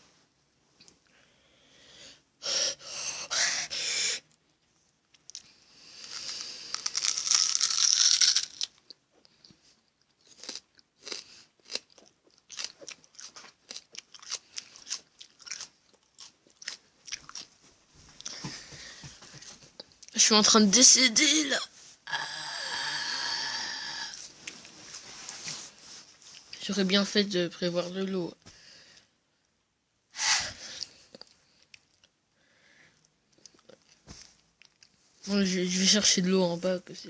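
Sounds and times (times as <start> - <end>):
person chewing raw onion: 5.1 - 17.5
breathy exhalations: 18.2 - 19.4, 22.0 - 24.3, 30.2 - 31.2.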